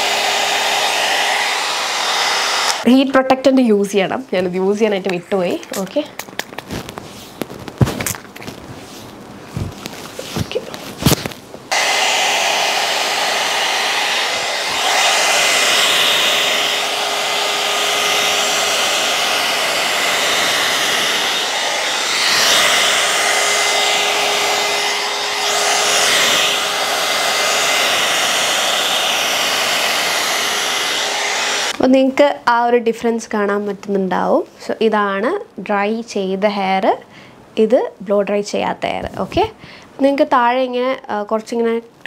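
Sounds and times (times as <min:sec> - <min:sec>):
hot-air brush blowing: 0:00.0 - 0:02.9, 0:08.8 - 0:31.8.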